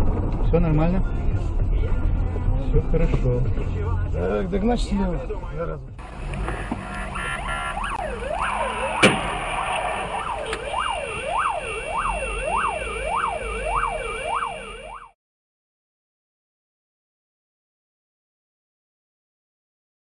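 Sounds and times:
traffic rumble: 0:00.0 - 0:15.0
siren wailing: 0:06.4 - 0:15.2.

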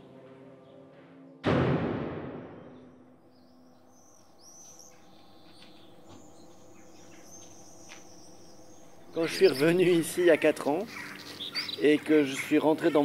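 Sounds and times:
deep boom: 0:01.4 - 0:03.3
birds chirping: 0:02.6 - 0:13.0.

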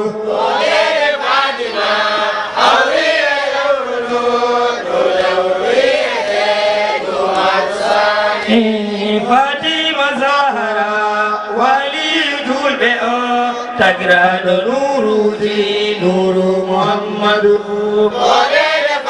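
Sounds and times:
man leading on a microphone: 0:00.0 - 0:00.4, 0:08.4 - 0:18.2
group of men chanting a devotional song: 0:00.0 - 0:19.0.

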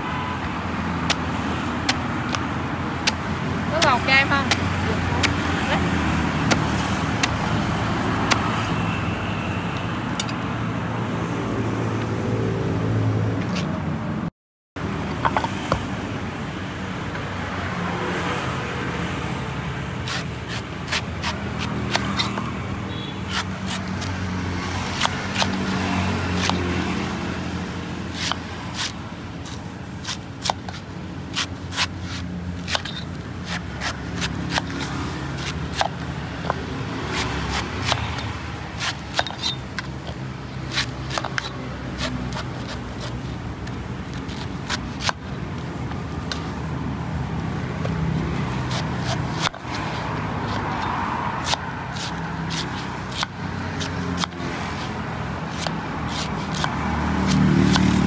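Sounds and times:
knife chopping coconut husk: 0:01.0 - 0:08.7, 0:20.0 - 0:46.6, 0:47.7 - 0:58.0.

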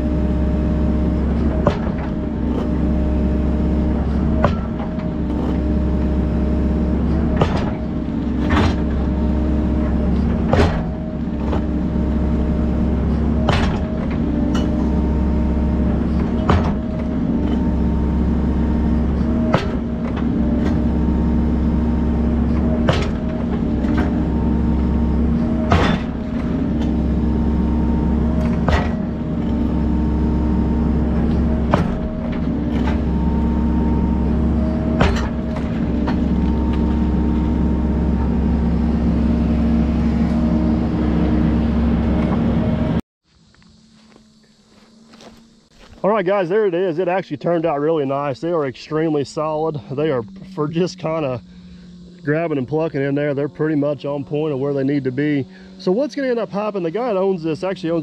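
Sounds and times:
excavator engine running: 0:00.0 - 0:58.0
hydraulic whine: 0:00.0 - 0:58.0
metal clank: 0:04.0 - 0:06.2, 0:06.8 - 0:39.3.

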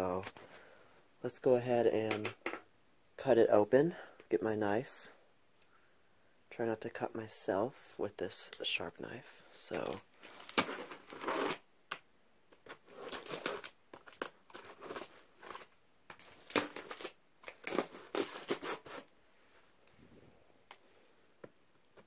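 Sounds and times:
knife slitting packing tape: 0:12.9 - 0:15.6, 0:16.3 - 0:19.1.

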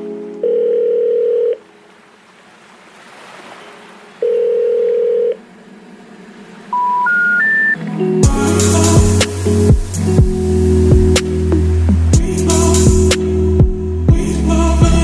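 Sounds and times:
steady telephone tone: 0:00.0 - 0:01.6, 0:04.2 - 0:05.4, 0:06.7 - 0:07.8
special information tone note: 0:06.7 - 0:08.4
line hiss: 0:07.8 - 0:13.6.

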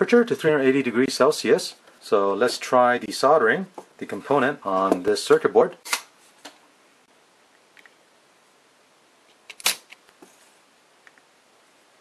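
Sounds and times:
low hiss: 0:00.0 - 0:12.0
sharp click: 0:09.5 - 0:10.0.

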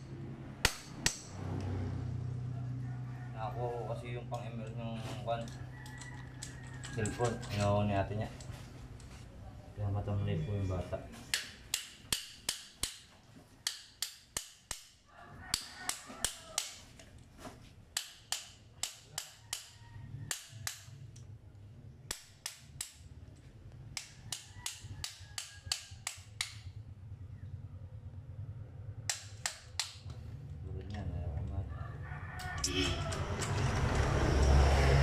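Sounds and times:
hand tool tapping metal cover: 0:18.0 - 0:20.9.

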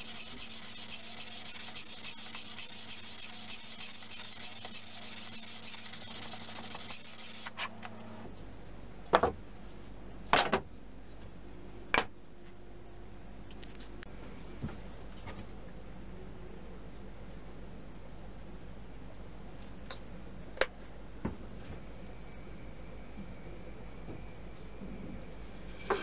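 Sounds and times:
sandpaper sanding wood: 0:00.0 - 0:08.1.

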